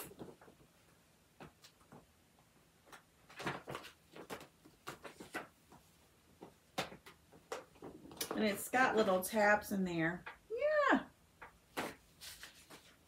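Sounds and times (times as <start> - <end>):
paper rustling: 2.8 - 8.3, 11.7 - 13.0.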